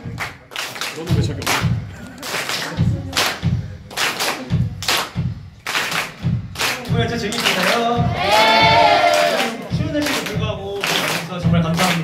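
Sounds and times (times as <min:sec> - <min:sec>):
group hand-clapping: 0:00.0 - 0:12.0
low beat: 0:00.0 - 0:12.0
chorus of voices singing: 0:08.1 - 0:09.7.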